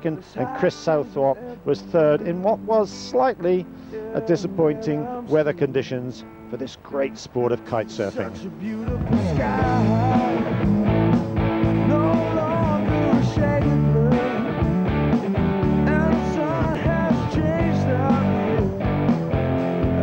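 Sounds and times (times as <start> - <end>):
rock music with singing: 0.0 - 6.4, 7.7 - 20.0.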